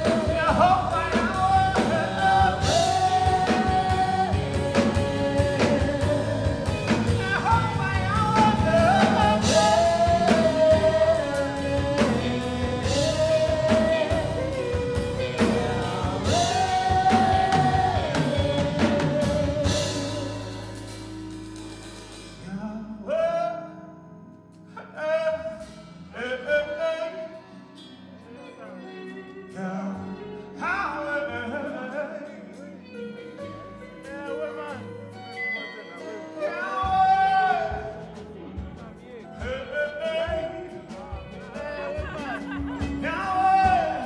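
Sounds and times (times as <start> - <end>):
singers in harmony: 0.0 - 21.1
live band playing: 0.0 - 23.2, 24.5 - 44.0.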